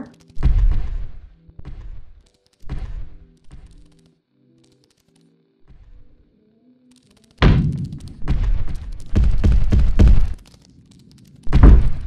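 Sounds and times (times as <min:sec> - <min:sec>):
foot stomping on floor: 0:00.4 - 0:02.1, 0:11.5 - 0:12.0.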